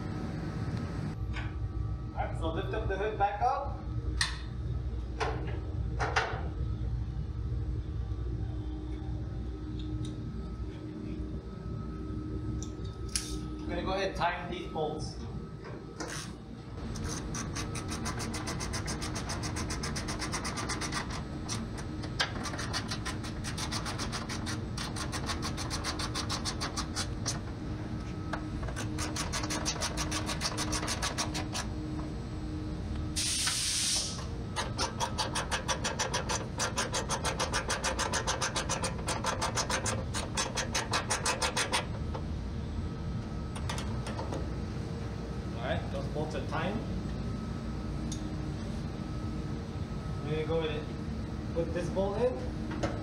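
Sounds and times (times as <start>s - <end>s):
short hiss: 33.2s - 34.2s.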